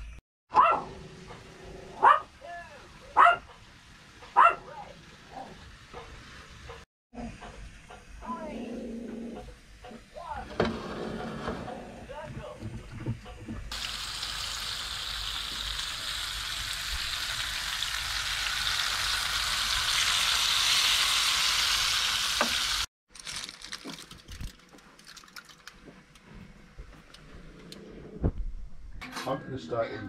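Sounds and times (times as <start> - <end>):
fish sizzling in a frying pan: 13.7 - 22.9.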